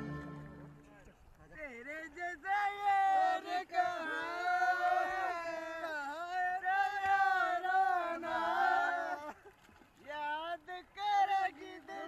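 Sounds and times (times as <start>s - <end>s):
several voices singing long notes: 6.6s - 9.2s.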